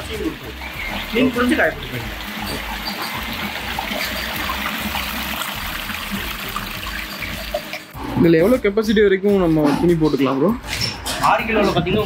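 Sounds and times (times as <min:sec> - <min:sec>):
water trickling from washing machine: 0:00.0 - 0:08.0.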